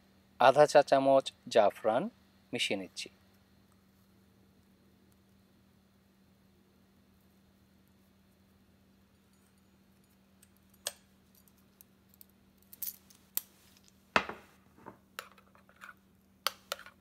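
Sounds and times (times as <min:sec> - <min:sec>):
knocks on a countertop: 0:14.2 - 0:15.0.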